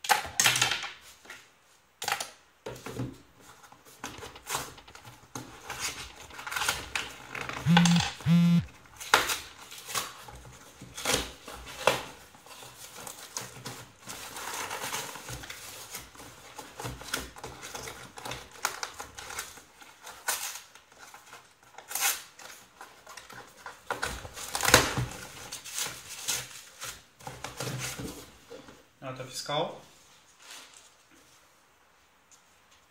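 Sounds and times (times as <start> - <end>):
bubble-wrap rustling: 8.9 - 28.3, 30.0 - 31.8.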